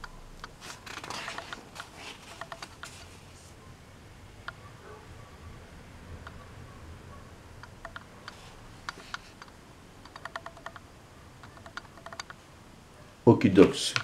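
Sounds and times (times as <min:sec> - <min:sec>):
paper rustling: 0:00.6 - 0:03.5.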